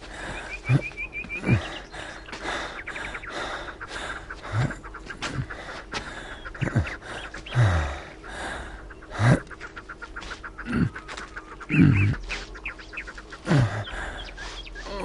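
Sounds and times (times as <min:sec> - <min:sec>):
man breathing hard: 0:00.0 - 0:09.5, 0:13.4 - 0:15.0.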